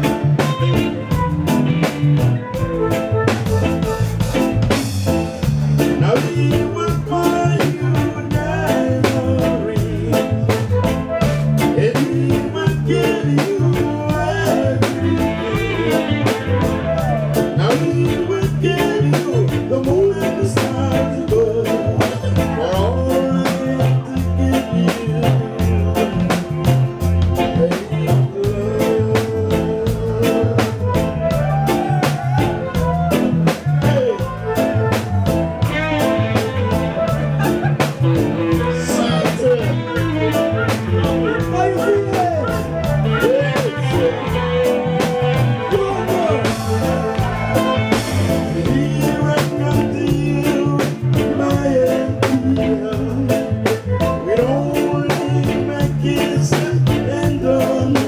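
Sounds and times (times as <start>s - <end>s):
bass: 0.0s - 58.0s
drum beat: 0.0s - 58.0s
reggae band playing: 0.0s - 58.0s
vocal trio singing: 11.6s - 26.4s, 38.4s - 58.0s.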